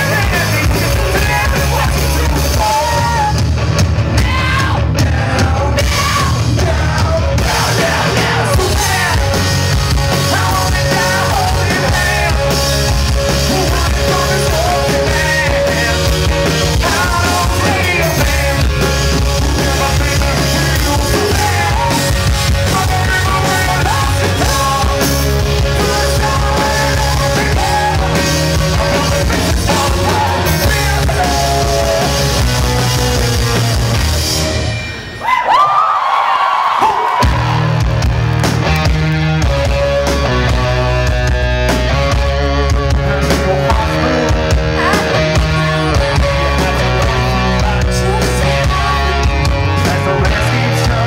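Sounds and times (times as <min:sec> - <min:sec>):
punk rock band playing: 0:00.0 - 0:51.0
person singing: 0:10.1 - 0:32.8, 0:42.2 - 0:51.0.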